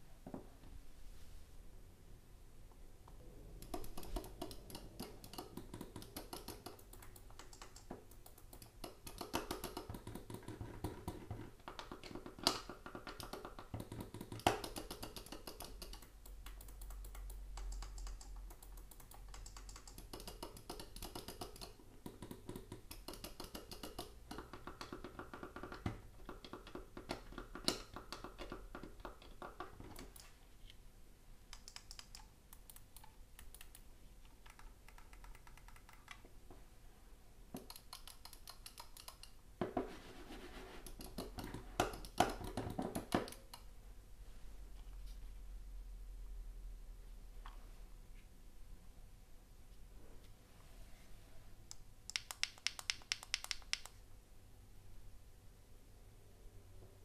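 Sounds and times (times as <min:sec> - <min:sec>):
mouse clicking rapidly: 0:03.6 - 0:30.4, 0:31.5 - 0:36.3, 0:37.6 - 0:39.4, 0:40.8 - 0:43.7, 0:51.7 - 0:54.0.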